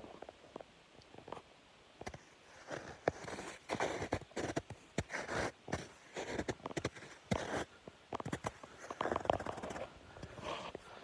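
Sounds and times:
boots crunching through icy snow: 2.6 - 10.7.

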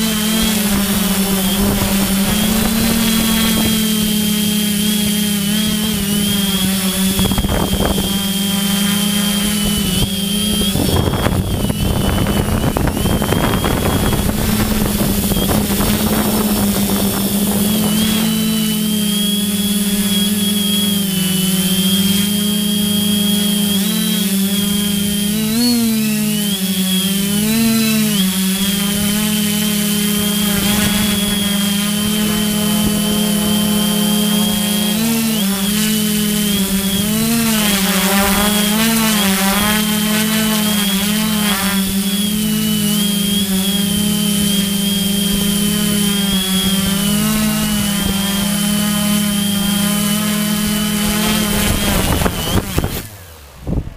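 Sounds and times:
drone motors whining: 0.0 - 53.9.

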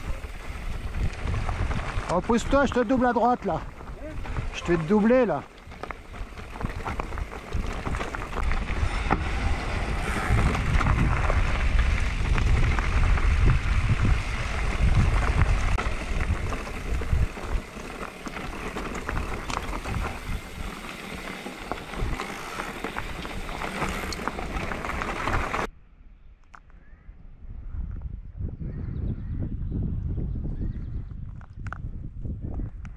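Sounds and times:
tyres on loose ground: 0.0 - 25.7
wind buffeting microphone: 0.0 - 25.7, 26.8 - 32.9.

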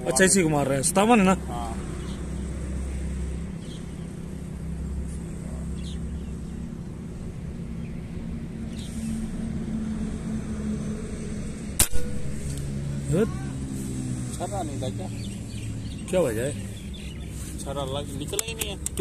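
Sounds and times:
steady low hum: 0.0 - 19.0
air gun shot: 11.8 - 12.6.

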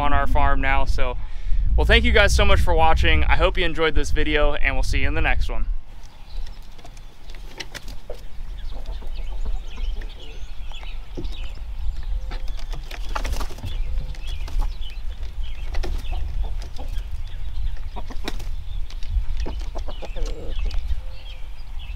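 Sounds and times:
wind rumble on microphone: 0.0 - 21.9
wings flapping: 6.0 - 10.2, 10.8 - 20.8
chickens clucking: 6.0 - 21.5.

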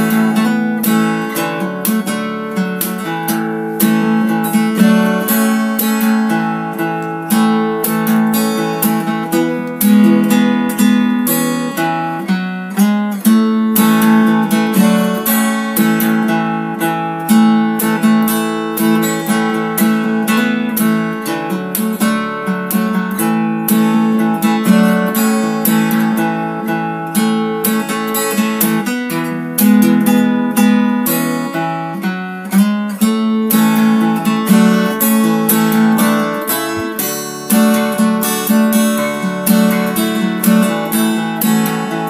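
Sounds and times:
acoustic guitar strumming: 0.0 - 42.0.

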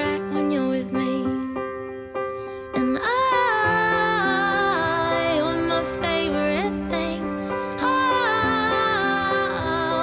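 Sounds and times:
pop song backing chords: 0.0 - 10.0
person singing: 2.7 - 10.0.

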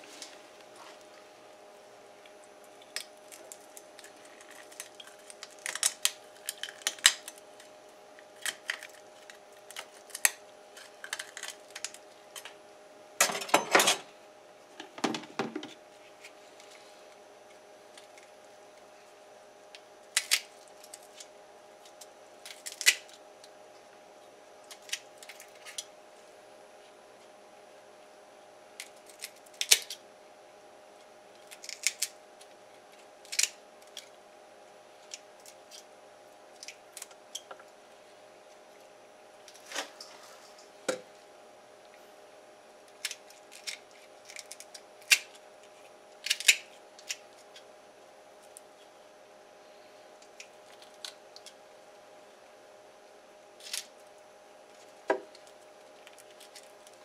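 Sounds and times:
faint steady hum: 0.0 - 57.0
knife and shears clicking and snipping: 46.2 - 47.6.

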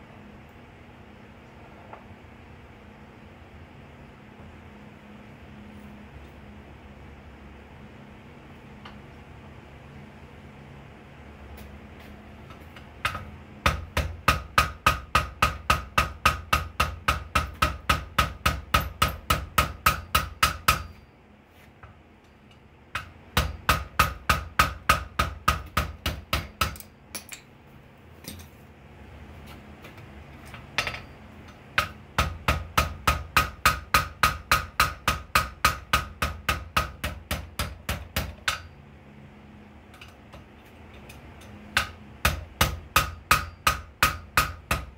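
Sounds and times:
steady low hum: 0.0 - 44.9
hammer ringing on anvil: 18.7 - 21.2, 30.8 - 31.9, 43.0 - 44.6.

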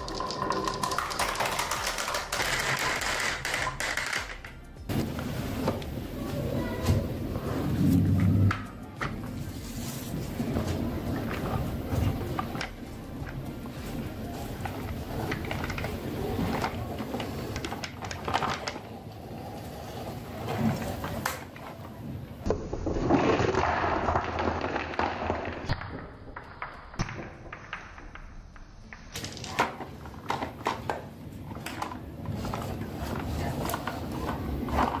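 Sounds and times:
glass marbles rattling in plastic bucket: 0.0 - 4.5
marbles rolling down wooden run: 0.0 - 4.6, 22.5 - 30.6
plastic toy knocking and rolling: 0.0 - 4.6, 14.6 - 18.9, 22.4 - 35.0.

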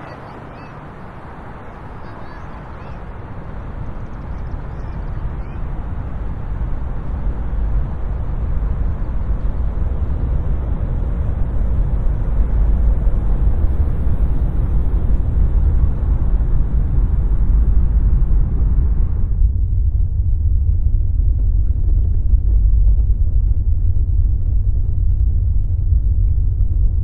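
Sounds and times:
low steady rumbling: 0.0 - 27.0.

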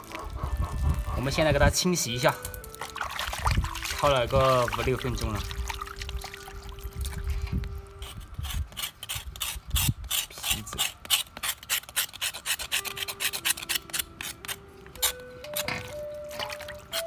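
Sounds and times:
knife scraping pork skin: 8.0 - 15.9.

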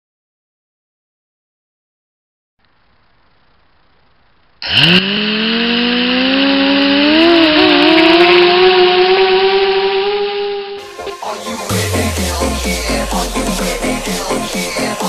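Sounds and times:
quadcopter motors whining: 4.6 - 11.4.

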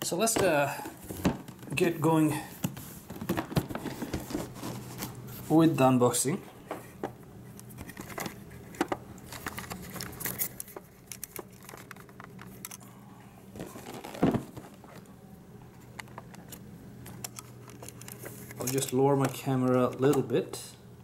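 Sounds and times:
plastic-wrapped box crinkling: 13.6 - 14.9
box thumping on table: 14.1 - 14.6.

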